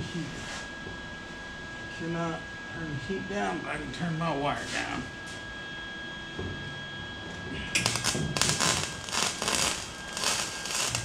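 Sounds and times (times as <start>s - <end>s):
welder arc crackling: 7.8s - 11.0s.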